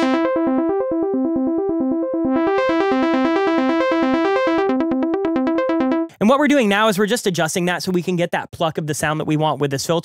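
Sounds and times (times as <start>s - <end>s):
arpeggiated synth: 0.0s - 6.1s.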